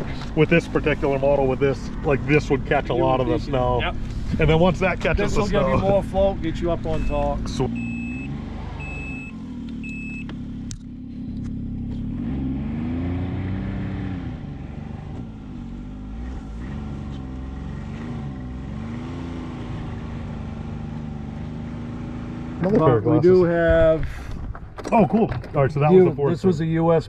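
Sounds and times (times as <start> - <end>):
snowmobile engine revving: 0.0 - 9.3
short high beeps: 7.0 - 10.3.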